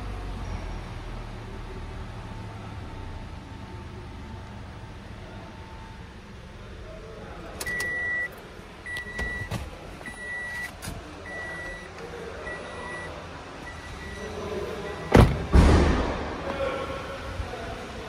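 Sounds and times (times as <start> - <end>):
car warning chime beeping: 7.5 - 15.5.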